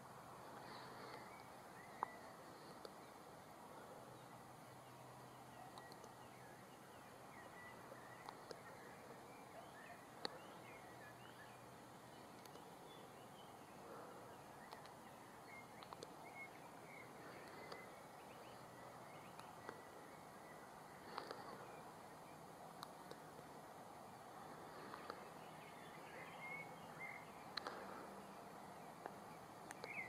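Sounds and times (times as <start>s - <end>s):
distant birds chirping: 0.0s - 30.0s
low steady hiss: 0.0s - 30.0s
sharp single clicks: 12.4s - 12.7s, 14.6s - 15.0s, 15.8s - 16.2s, 29.0s - 30.0s.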